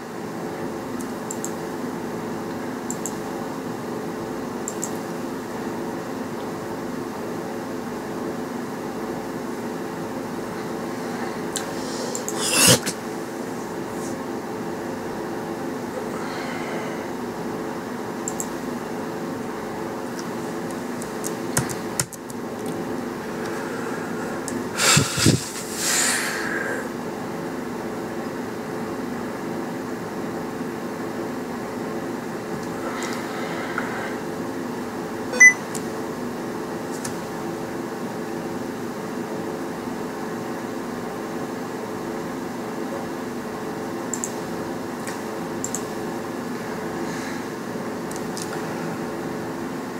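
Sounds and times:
low machine hum: 0:00.0 - 0:49.9
sharp clicks: 0:04.6 - 0:05.0, 0:18.2 - 0:18.5, 0:45.0 - 0:45.9
clicks: 0:04.7 - 0:05.0, 0:18.2 - 0:18.5.

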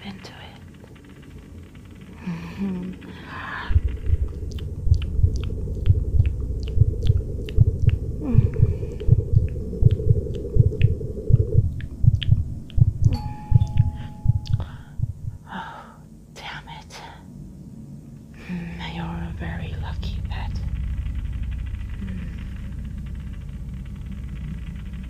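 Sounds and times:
heartbeat thumping: 0:03.7 - 0:15.4.

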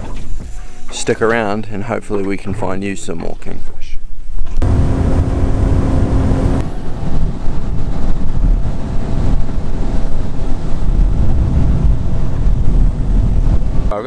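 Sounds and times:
boat engine hum: 0:04.6 - 0:13.9
wind buffeting microphone: 0:04.6 - 0:14.0.

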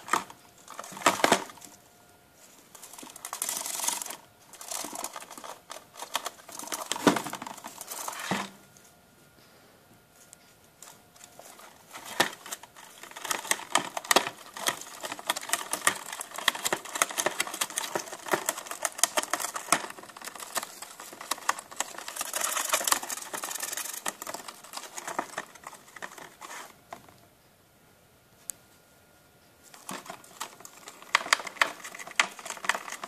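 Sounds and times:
gerbil gnawing cardboard: 0:02.4 - 0:08.4, 0:11.2 - 0:27.0, 0:29.7 - 0:33.0.

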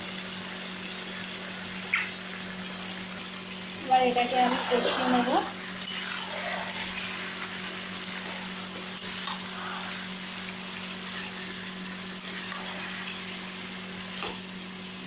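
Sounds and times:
chicken sizzling in hot oil: 0:00.0 - 0:15.0
spatula scraping pan: 0:04.1 - 0:13.5.

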